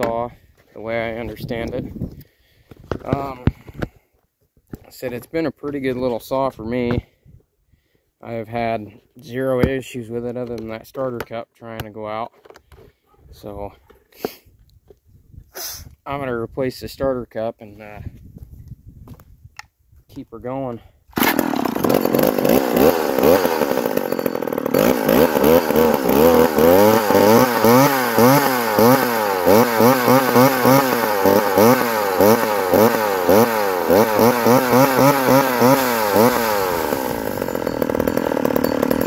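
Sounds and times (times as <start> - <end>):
chainsaw engine revving: 21.1 - 39.0.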